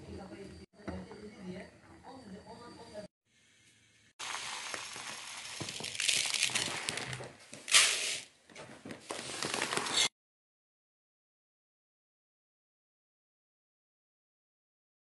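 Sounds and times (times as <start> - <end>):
dry rice pouring rattle: 4.2 - 8.3.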